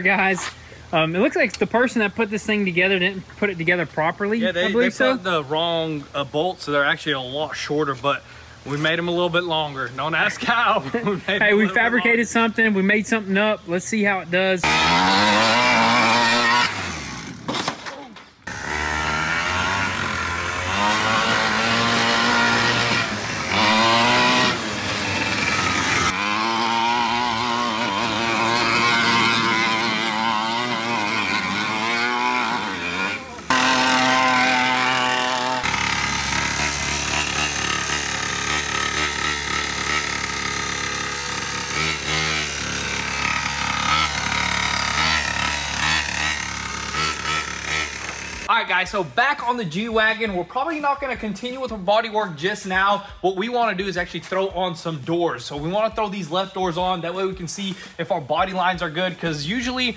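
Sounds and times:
small two-stroke engine revving: 0:14.6 - 0:17.5, 0:18.4 - 0:48.5.

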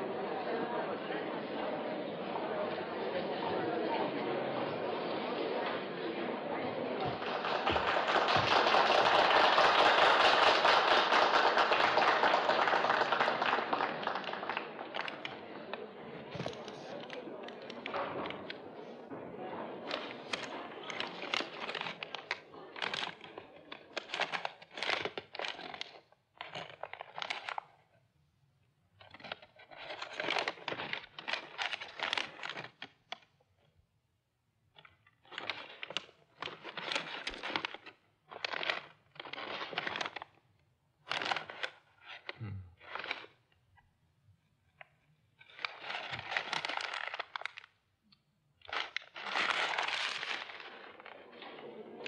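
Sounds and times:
paper crinkling: 0:19.9 - 0:27.6, 0:29.0 - 0:33.0, 0:34.8 - 0:40.4, 0:41.0 - 0:43.4, 0:44.8 - 0:47.8, 0:48.6 - 0:51.7.

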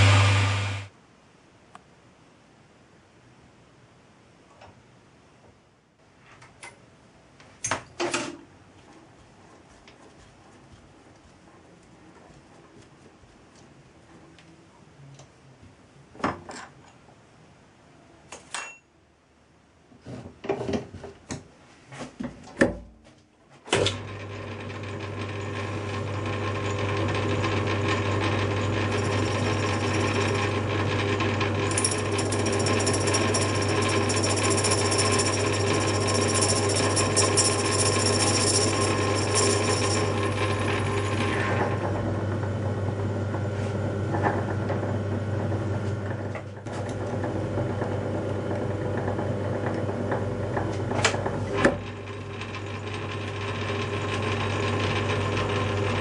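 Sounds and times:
lathe humming: 0:00.0 - 0:00.9, 0:24.3 - 0:43.4, 0:46.8 - 0:56.0
tool cutting brass: 0:27.4 - 0:41.6.

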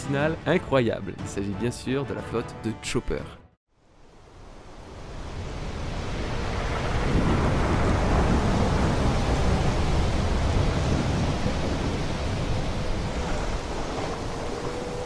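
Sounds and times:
thunder-like rumble: 0:05.0 - 0:15.0.

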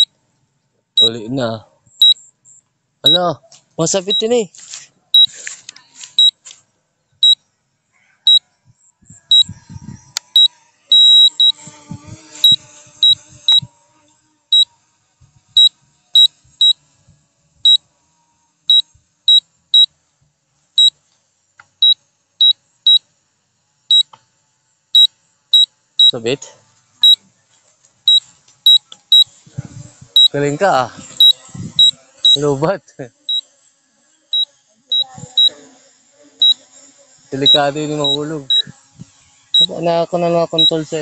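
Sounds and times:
short high warning beeps: 0:01.0 - 0:01.2, 0:02.0 - 0:03.2, 0:04.0 - 0:04.4, 0:05.2 - 0:05.4, 0:10.4 - 0:11.6, 0:31.2 - 0:32.4, 0:37.4 - 0:38.7.

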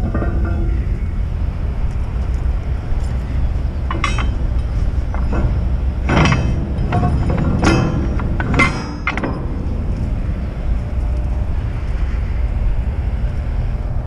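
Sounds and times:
steady low rumble: 0:00.0 - 0:14.0
sharp metallic clinks: 0:03.9 - 0:09.7.

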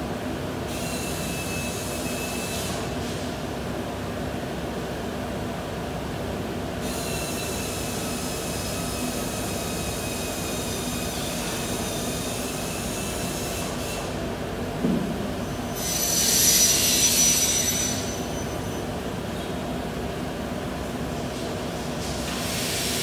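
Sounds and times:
workshop machinery humming and whining: 0:00.0 - 0:23.0
thump: 0:14.8 - 0:15.1
high-pitched hiss with squeal: 0:15.8 - 0:18.6.

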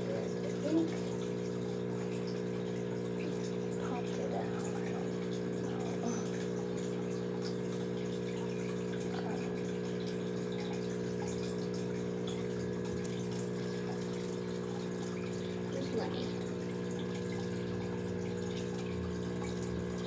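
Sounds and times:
aquarium pump humming: 0:00.0 - 0:20.0
water bubbling: 0:00.0 - 0:20.0.

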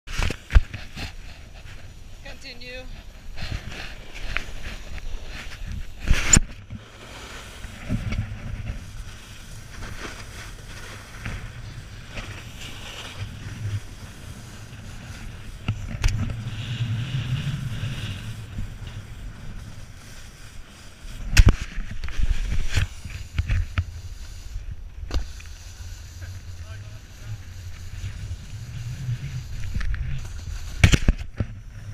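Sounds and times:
snowboard scraping over snow: 0:00.1 - 0:31.9
wind buffeting microphone: 0:11.0 - 0:31.9.

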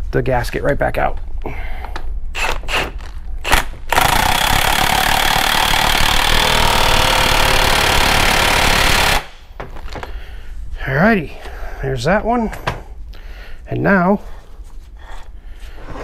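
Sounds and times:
impact wrench running: 0:02.4 - 0:09.5.

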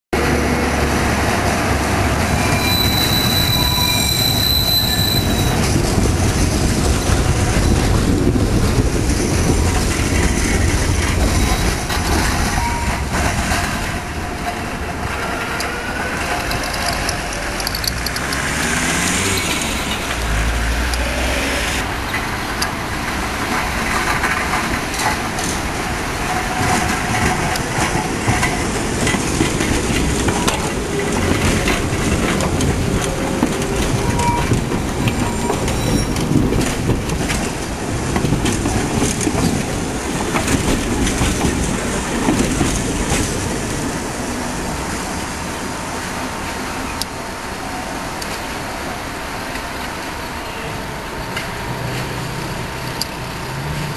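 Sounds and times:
tram rumbling past: 0:00.2 - 0:53.9
tram wheels squealing: 0:00.2 - 0:53.9
wheels clacking over rail joints: 0:00.2 - 0:53.9.

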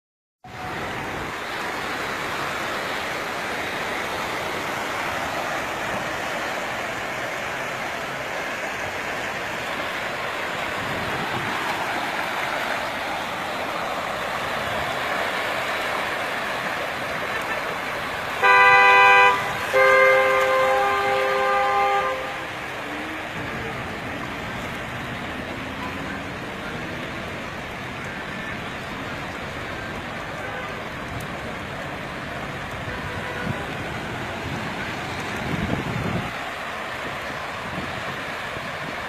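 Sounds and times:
heavy rain and running water: 0:00.4 - 0:39.0
car horn honking: 0:18.3 - 0:22.6, 0:32.9 - 0:33.6.

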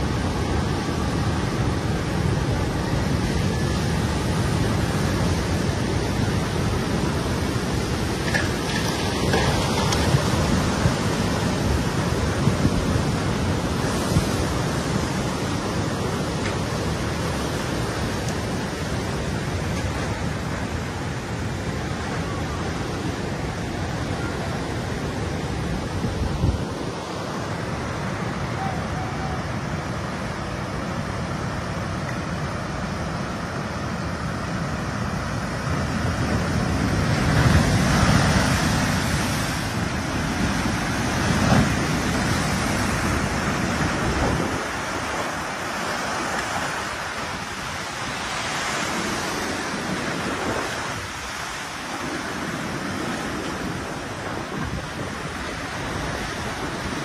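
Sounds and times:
floodwater rushing: 0:00.0 - 0:57.0
wind buffeting microphone: 0:33.9 - 0:57.0.

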